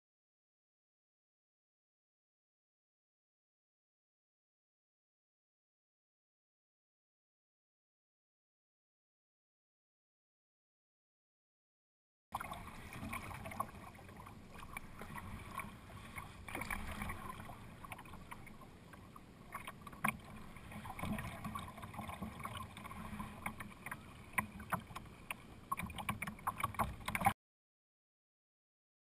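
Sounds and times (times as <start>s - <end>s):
paddle dipping in water: 12.4s - 27.3s
water splashing and lapping: 12.4s - 27.4s.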